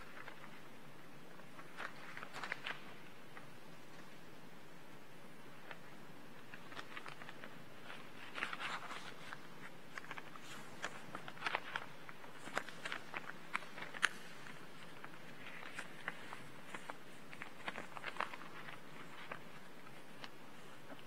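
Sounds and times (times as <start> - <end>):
steady low hiss: 0.0 - 21.0
faint clicks and taps: 5.6 - 21.0.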